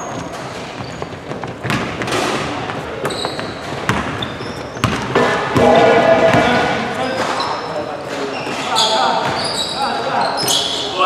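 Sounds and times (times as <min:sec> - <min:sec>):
sneaker squeaks: 0:00.0 - 0:05.7, 0:06.3 - 0:11.0
basketball bouncing on hardwood floor: 0:00.0 - 0:06.6.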